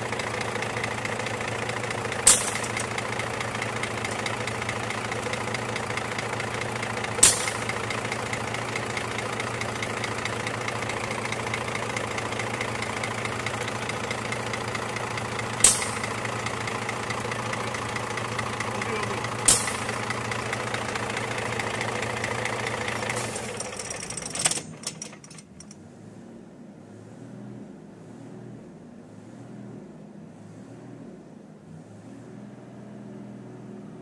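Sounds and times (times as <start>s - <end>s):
diesel truck engine idling: 0.0s - 25.8s.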